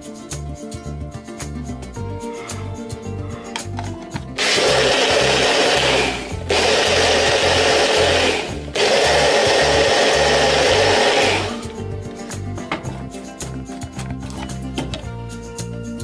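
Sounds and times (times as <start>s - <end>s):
blender grinding seeds: 4.4s - 11.7s.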